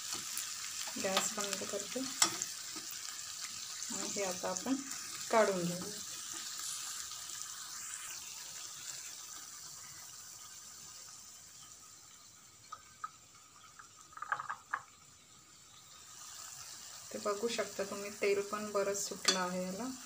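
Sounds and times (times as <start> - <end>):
oil sizzling in a pan: 0.0 - 20.0
spoon clinking against pan: 19.2 - 19.5.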